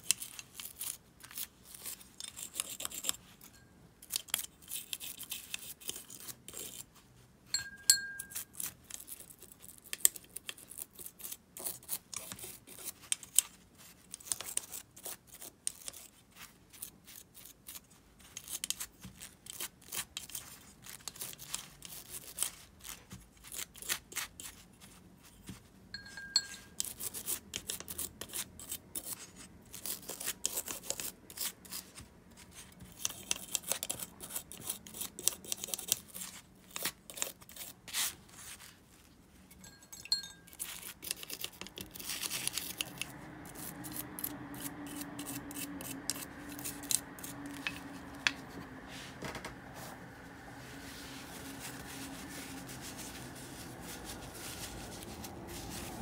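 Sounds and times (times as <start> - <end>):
short ringing tone: 26.0 - 26.7.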